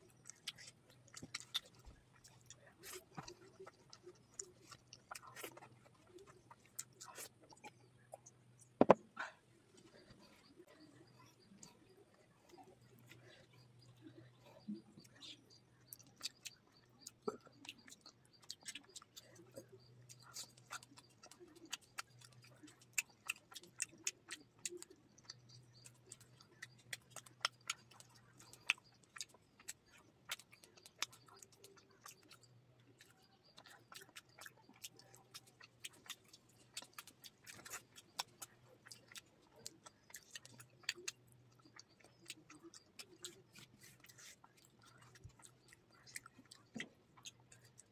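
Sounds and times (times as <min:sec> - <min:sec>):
chewing with mouth clicks: 0:00.0 - 0:47.9
fingers picking at food: 0:09.7 - 0:47.9.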